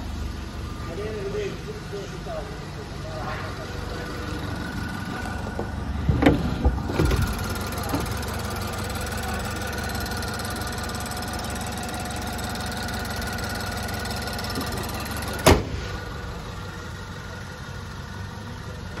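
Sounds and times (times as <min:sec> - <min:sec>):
car engine idling: 0:00.0 - 0:19.0
car bonnet slamming shut: 0:06.0 - 0:08.2, 0:15.4 - 0:16.0.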